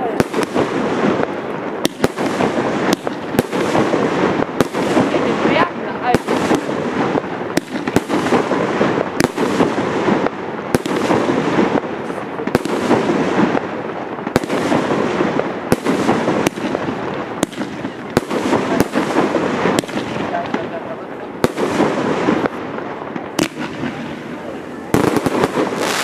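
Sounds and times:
dense fireworks noise: 0.0 - 26.0
firework shells bursting: 24.9 - 26.0.

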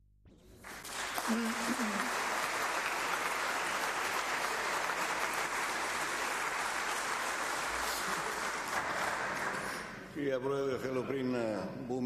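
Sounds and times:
crowd applauding: 0.6 - 10.0.

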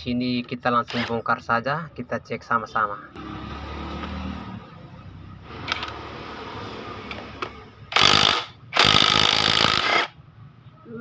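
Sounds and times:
impact wrench hammering: 7.9 - 10.1.

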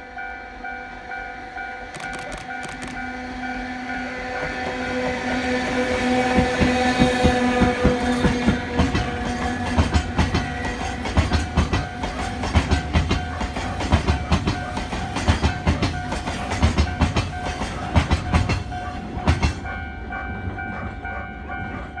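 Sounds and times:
train wheels clacking over rail joints: 6.3 - 19.8.

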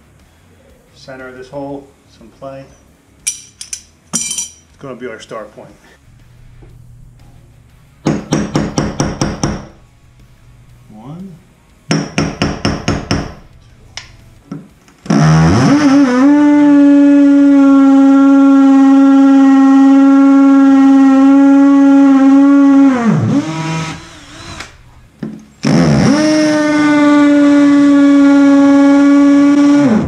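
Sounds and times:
hammer tapping on punch: 8.0 - 9.8, 11.9 - 13.4
cordless drill boring into tile: 23.0 - 24.7.

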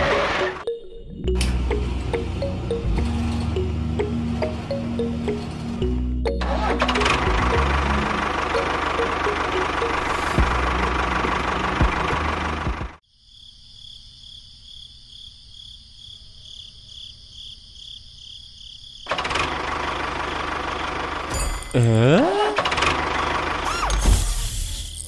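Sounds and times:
tractor engine running: 0.0 - 0.6, 1.2 - 13.0, 19.1 - 24.7.

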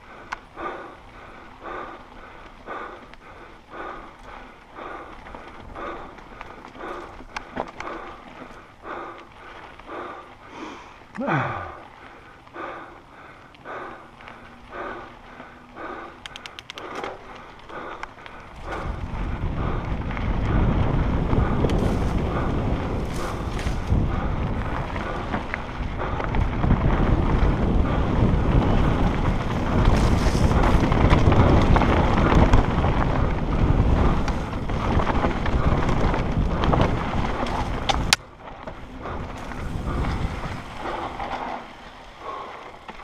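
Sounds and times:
tyres rumbling on dirt trail: 0.0 - 43.0
wind buffeting microphone: 11.4 - 43.0.

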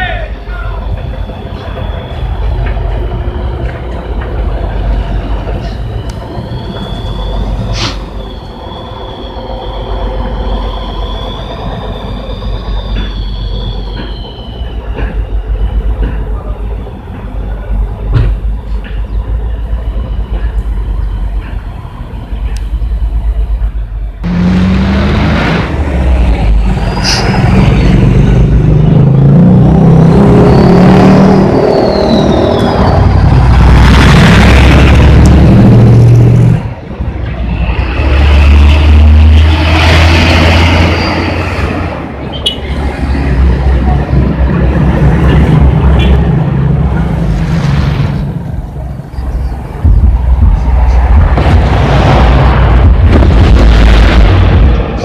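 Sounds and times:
diesel trucks passing: 0.0 - 55.0
road traffic: 0.0 - 55.0.

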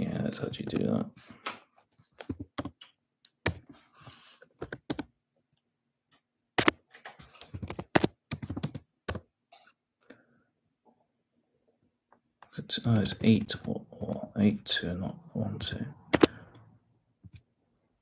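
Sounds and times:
typing on keyboard: 2.2 - 3.6, 4.6 - 5.1, 6.6 - 9.2.

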